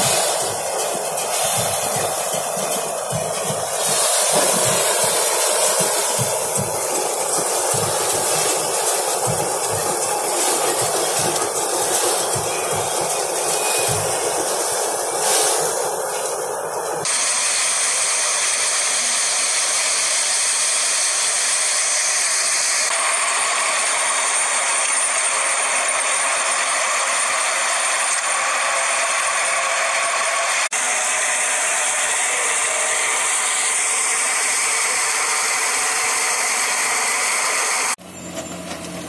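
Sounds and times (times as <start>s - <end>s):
rotavator rattling with whine: 0.0s - 17.2s, 31.2s - 39.0s
straw chopper hissing: 0.0s - 23.7s.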